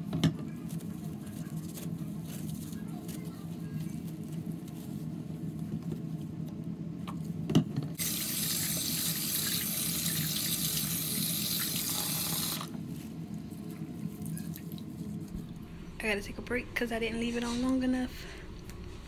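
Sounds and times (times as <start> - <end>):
tap water running: 8.0 - 12.8
hair being rinsed by hand: 8.0 - 13.1.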